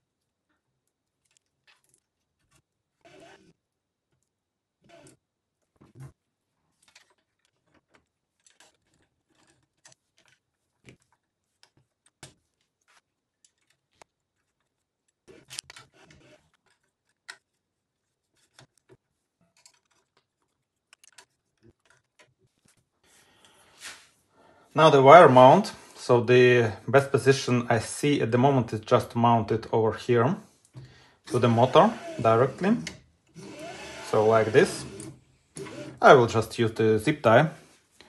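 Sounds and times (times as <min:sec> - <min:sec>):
plastic parts clicking and tapping: 0:18.4 - 0:22.8.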